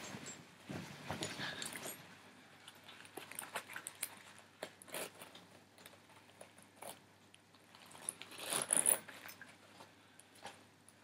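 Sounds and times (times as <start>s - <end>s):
webbing straps clicking and rustling: 2.7s - 10.6s.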